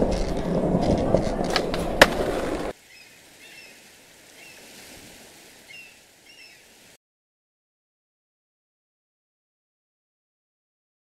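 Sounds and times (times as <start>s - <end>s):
skateboard wheels rolling: 0.0s - 2.8s
bird chirps: 5.7s - 6.6s.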